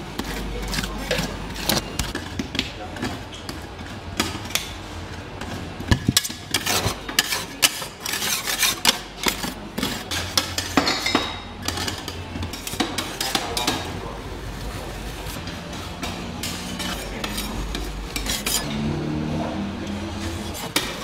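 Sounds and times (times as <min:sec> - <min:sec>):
metal spatulas scraping steel plate: 0:06.1 - 0:13.9, 0:15.4 - 0:19.2, 0:19.8 - 0:21.0.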